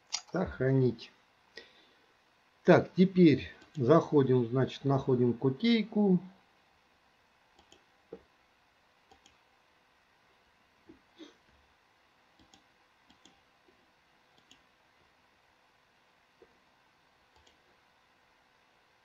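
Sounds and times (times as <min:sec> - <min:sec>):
faint computer mouse clicks: 0:07.6 - 0:08.2, 0:09.1 - 0:09.4, 0:12.4 - 0:13.4, 0:14.3 - 0:14.7, 0:17.3 - 0:17.6.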